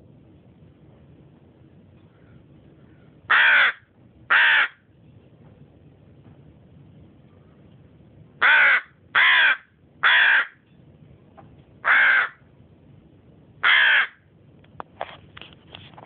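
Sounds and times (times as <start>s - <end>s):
crow cawing: 2.2s - 4.8s, 8.4s - 10.6s, 11.8s - 12.4s, 13.6s - 14.2s.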